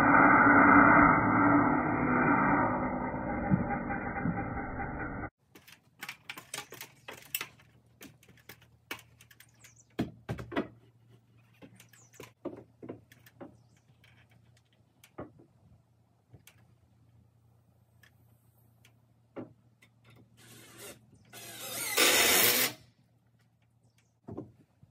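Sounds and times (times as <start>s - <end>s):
knocks and clicks on wooden framing: 5.4s - 15.6s.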